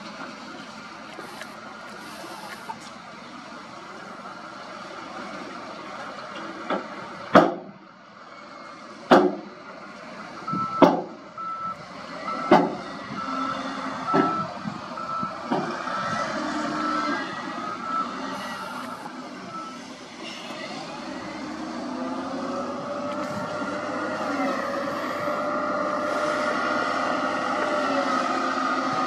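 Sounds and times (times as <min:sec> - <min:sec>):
diesel engine running: 0:00.0 - 0:29.0
sharp knocks: 0:06.7 - 0:07.7, 0:09.1 - 0:09.5.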